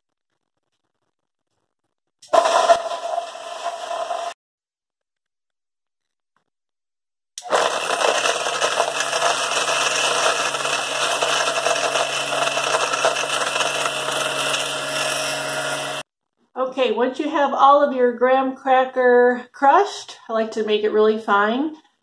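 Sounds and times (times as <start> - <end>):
blender grinding crackers: 2.2 - 4.4, 7.4 - 16.1
blender motor hum: 2.3 - 4.4, 7.4 - 16.1.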